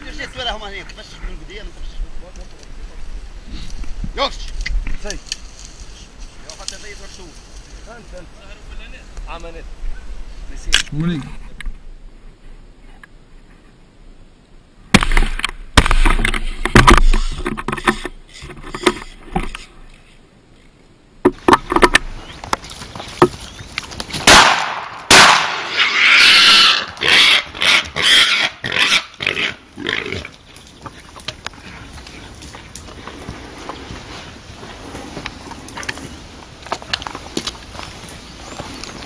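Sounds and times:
sharp cracks and knocks: 14.9 - 19.6, 21.2 - 25.8
wild boar grunting and squealing: 25.6 - 33.6.

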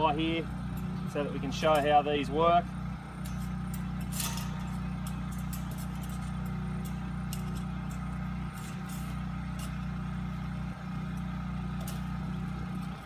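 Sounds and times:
engine idling: 0.0 - 13.0
clicks of fencing wire: 3.1 - 13.0
ratchet wire strainer clicking: 3.2 - 10.4, 11.0 - 13.0.

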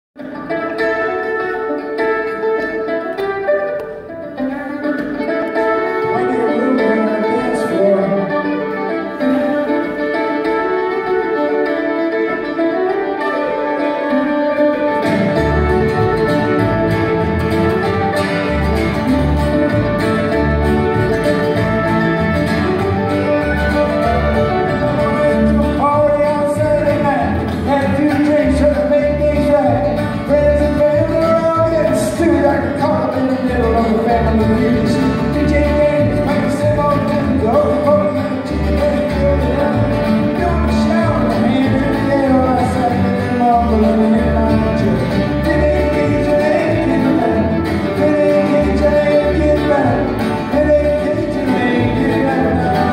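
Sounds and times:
acoustic string band playing: 0.2 - 52.9
walking bass: 0.2 - 52.9
man singing: 5.3 - 9.4, 23.2 - 52.9.

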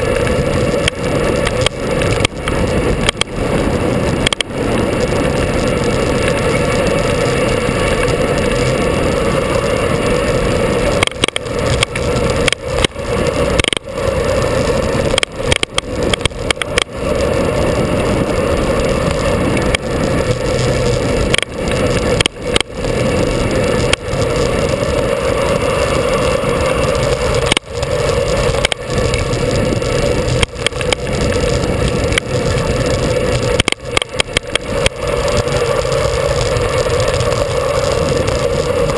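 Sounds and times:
road rumble: 0.0 - 38.9
wind rushing over microphone: 0.0 - 38.9.

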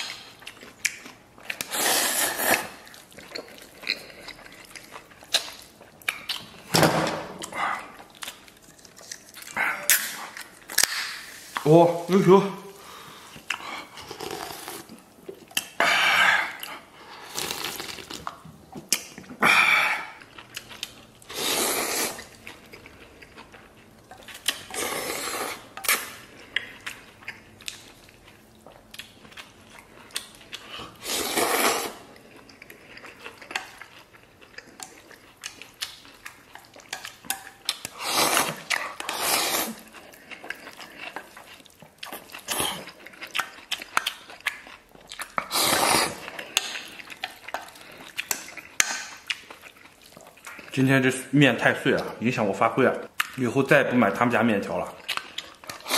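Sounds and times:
noodles slurped: 1.5 - 5.5, 16.1 - 18.3, 21.2 - 23.2, 24.6 - 26.2, 30.6 - 32.1, 37.8 - 41.4, 45.3 - 48.0.

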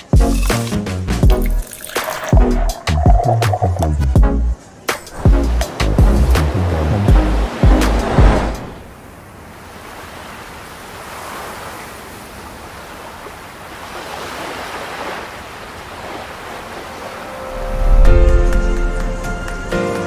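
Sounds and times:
ocean surf washing on beach: 5.1 - 18.8.

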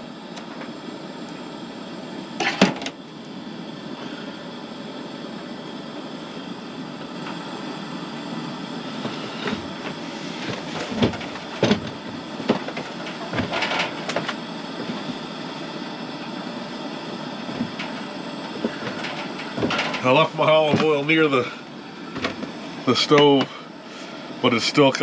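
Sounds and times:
propane burner hissing: 0.0 - 25.0
knocks and rustles of handling: 9.0 - 15.2, 18.6 - 20.1.

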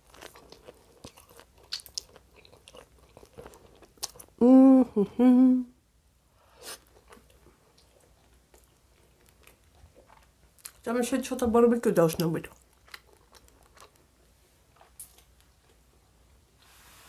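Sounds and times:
chewing pizza crust: 0.0 - 4.4, 6.6 - 10.9, 12.2 - 16.2
person humming: 4.4 - 5.8.

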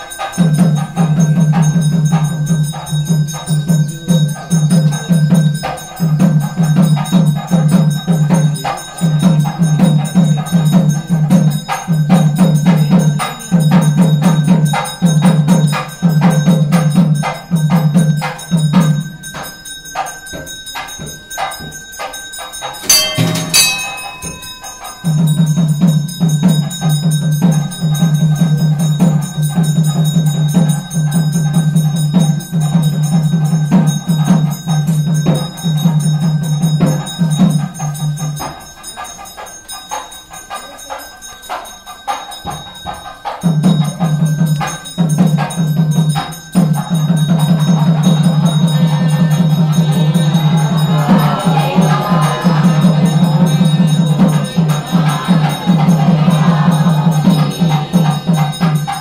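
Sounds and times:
bells ringing: 0.0 - 59.0
drum beaten in fast rhythm: 0.0 - 59.0.

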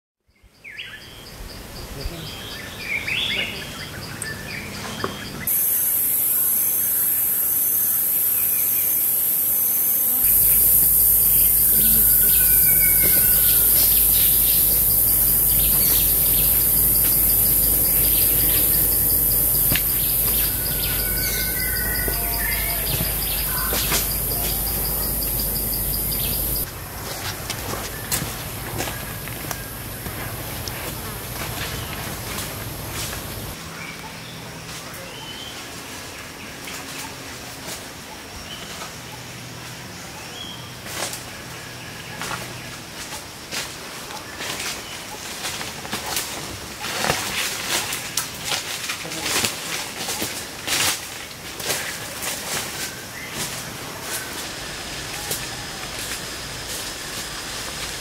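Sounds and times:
birds whistling calls: 2.3 - 26.7
fast-pulsing insect trill: 5.5 - 26.7, 28.9 - 33.6
high-pitched insect drone: 5.5 - 26.7, 27.8 - 33.6.

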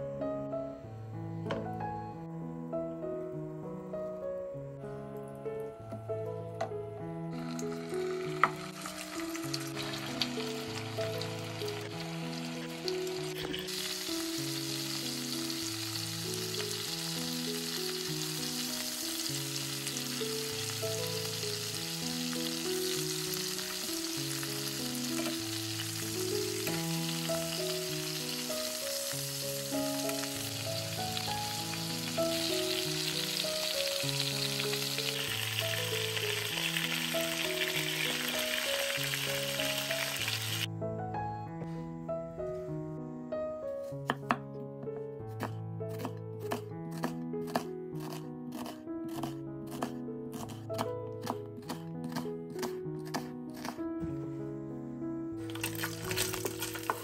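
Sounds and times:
soft background music: 0.0 - 57.0
meat sizzling in a pan: 7.4 - 40.7, 55.4 - 57.0.

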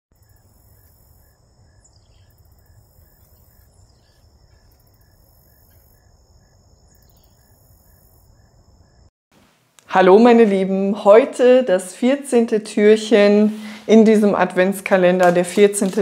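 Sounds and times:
high insect buzz: 0.2 - 9.1.

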